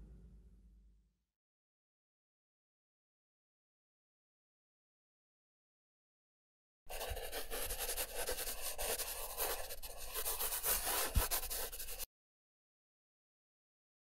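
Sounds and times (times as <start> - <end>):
pencil sketching on paper: 6.9 - 12.1.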